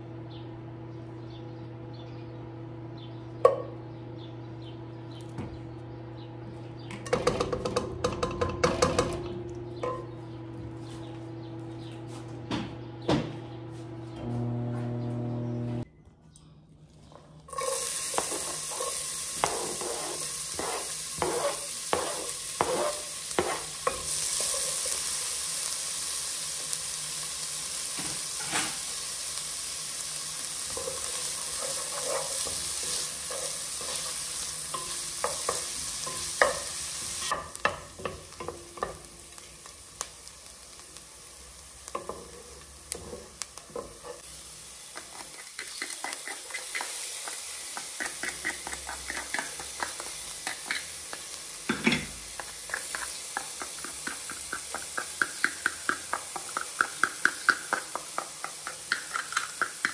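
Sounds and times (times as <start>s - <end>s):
onion sizzling in hot oil: 17.5s - 59.9s
wooden spoon stirring in pot: 17.6s - 23.7s, 30.8s - 35.8s, 44.9s - 51.2s.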